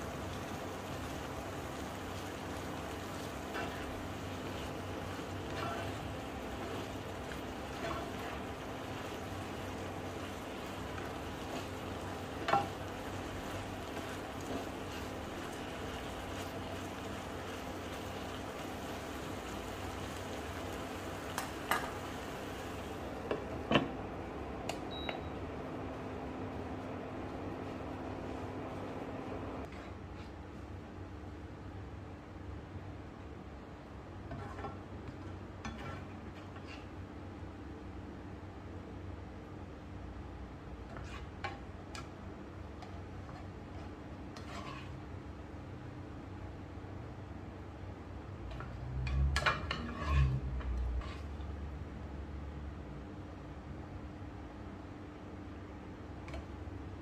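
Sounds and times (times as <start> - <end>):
food sizzling in a skillet: 0.0 - 23.1.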